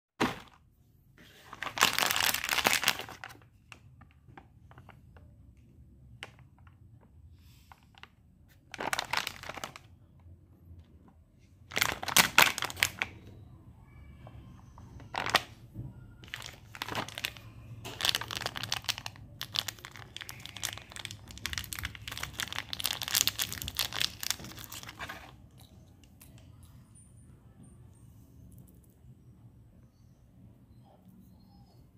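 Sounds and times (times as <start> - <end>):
plastic foil packet crinkling: 1.5 - 3.4, 8.7 - 9.9, 11.7 - 13.1, 16.2 - 25.4.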